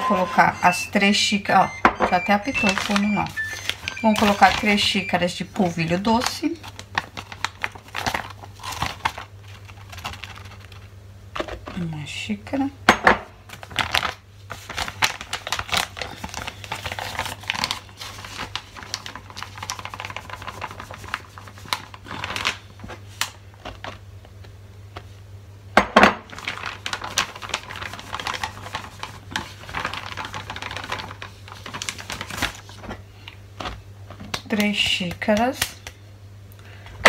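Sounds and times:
plastic bag crinkling: 0:00.0 - 0:10.9, 0:13.5 - 0:24.0, 0:26.2 - 0:33.0.

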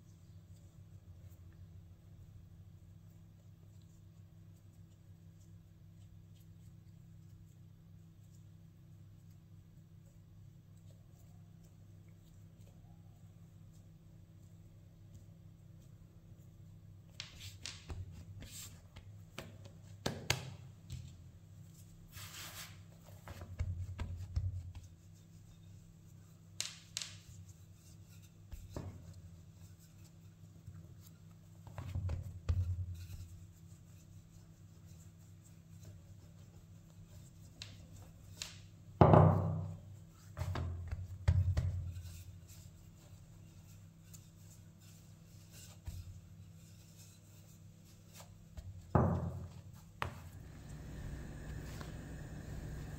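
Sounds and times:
rolling pin rolling dough: 0:50.0 - 0:52.9.

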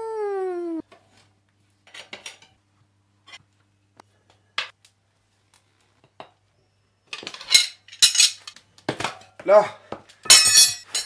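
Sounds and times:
tools clinking: 0:07.2 - 0:08.6, 0:10.3 - 0:11.0.

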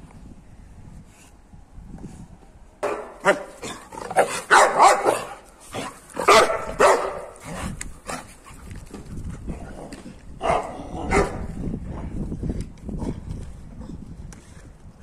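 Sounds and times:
dogs barking: 0:02.8 - 0:08.3, 0:10.4 - 0:11.5.

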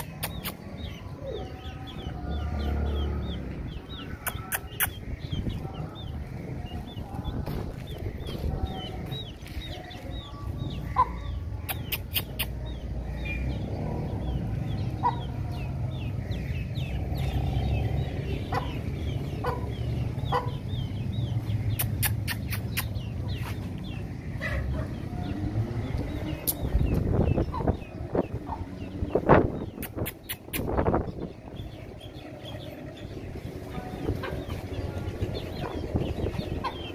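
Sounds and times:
chicks peeping: 0:00.0 - 0:36.9
steady low rumble: 0:01.8 - 0:11.6.

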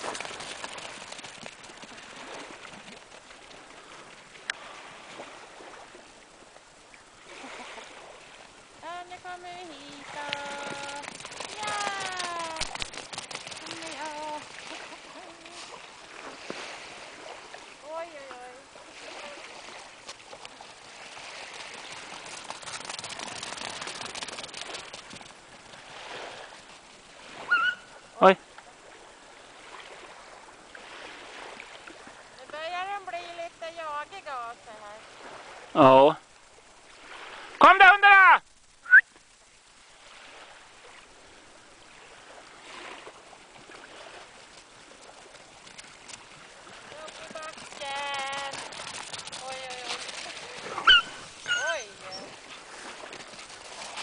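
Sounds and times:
dog paws on stony ground: 0:00.0 - 0:03.3, 0:09.2 - 0:16.6, 0:20.0 - 0:25.9, 0:44.4 - 0:54.0
small waves lapping on stony beach: 0:00.0 - 0:38.2, 0:39.3 - 0:54.0
faint clicks: 0:44.4 - 0:51.0.

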